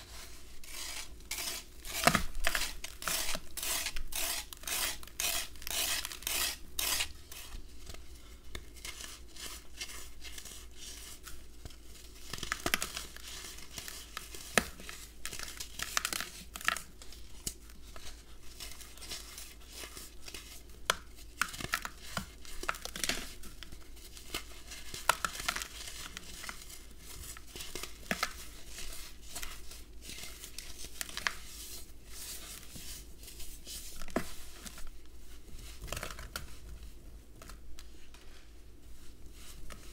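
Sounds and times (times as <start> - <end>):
plastic knife scraping sand block: 0.0 - 7.6.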